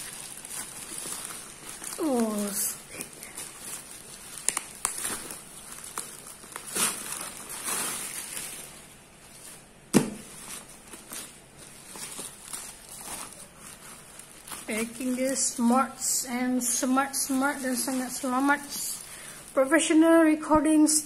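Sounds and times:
bubble wrap crinkling: 0:00.0 - 0:21.0.

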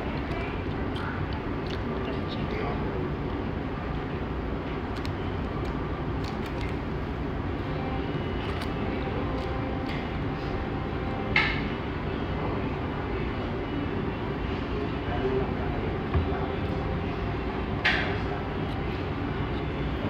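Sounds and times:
restaurant low rumble: 0:00.0 - 0:20.0.

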